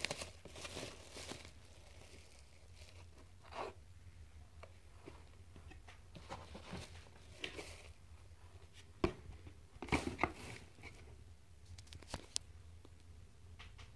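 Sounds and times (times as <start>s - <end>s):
bubble wrap crinkling: 0.0s - 3.4s, 6.6s - 8.0s.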